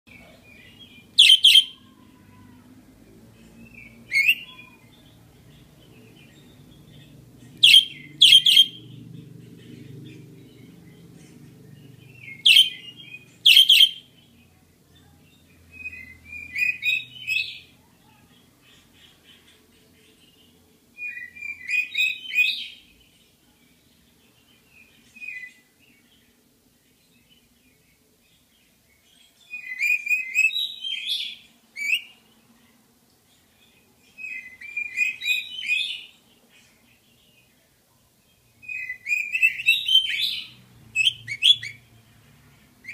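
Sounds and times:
budgerigar chirping: 0:00.8 - 0:01.8, 0:07.6 - 0:08.9, 0:12.1 - 0:14.1, 0:38.6 - 0:41.8.

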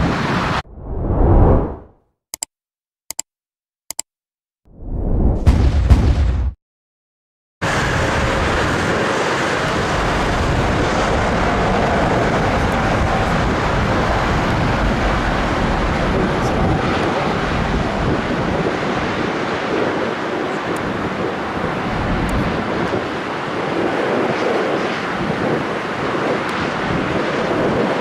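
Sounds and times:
jet airliner engine noise: 0:00.0 - 0:01.8, 0:07.6 - 0:28.0
wind buffeting microphone: 0:07.7 - 0:28.0.

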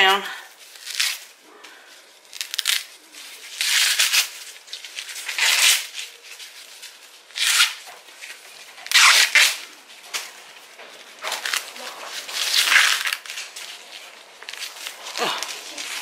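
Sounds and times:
corn husks ripping: 0:00.5 - 0:10.4, 0:11.0 - 0:16.0.

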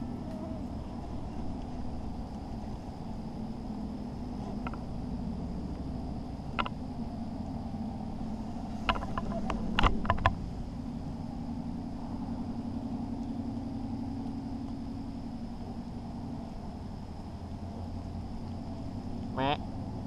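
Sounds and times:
distant engine hum: 0:00.0 - 0:20.0
sharp clicks and knocks: 0:08.8 - 0:10.4.

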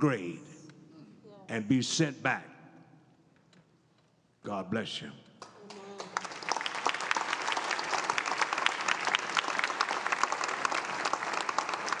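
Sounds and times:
crowd clapping: 0:05.4 - 0:12.0.

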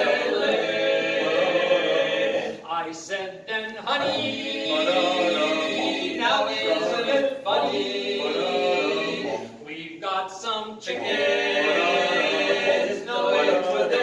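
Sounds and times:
male quartet singing a cappella: 0:00.0 - 0:14.0.

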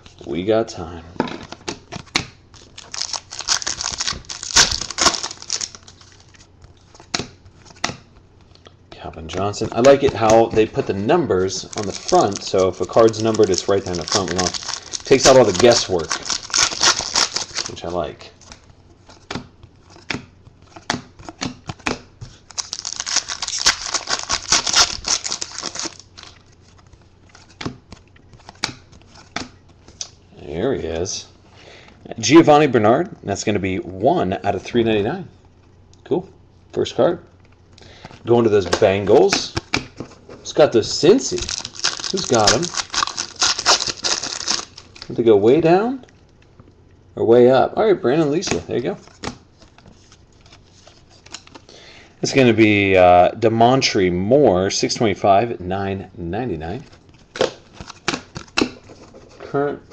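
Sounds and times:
cards flipping and snapping: 0:01.4 - 0:08.6, 0:11.6 - 0:17.8, 0:18.4 - 0:30.2, 0:41.3 - 0:45.2, 0:57.2 - 0:59.3
foil pack crinkling: 0:02.6 - 0:07.8, 0:09.3 - 0:18.6, 0:22.2 - 0:29.4, 0:41.1 - 0:45.3.

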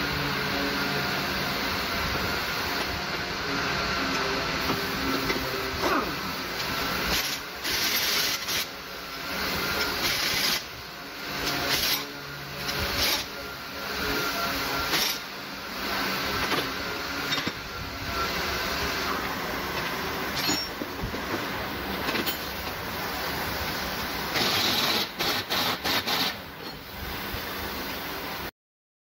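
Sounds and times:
pneumatic air tool bursts: 0:04.6 - 0:18.6, 0:20.3 - 0:20.8, 0:24.3 - 0:27.4.

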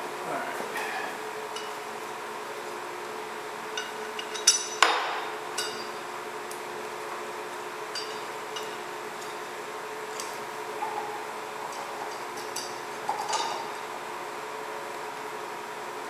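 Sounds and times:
low machine hum: 0:00.0 - 0:16.0
screws and washers clinking: 0:07.9 - 0:09.4.

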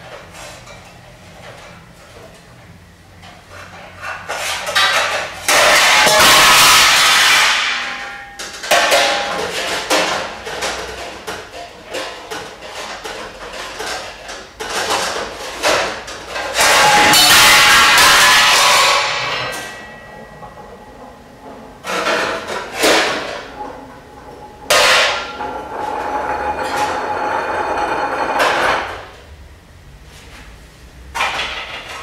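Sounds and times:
metal dishes clanking and scraping: 0:03.7 - 0:29.1
loud metal clatter: 0:04.6 - 0:29.1.

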